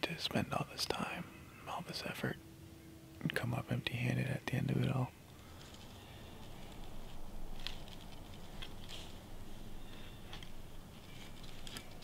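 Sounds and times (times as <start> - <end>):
footsteps in dry leaves: 5.4 - 12.0.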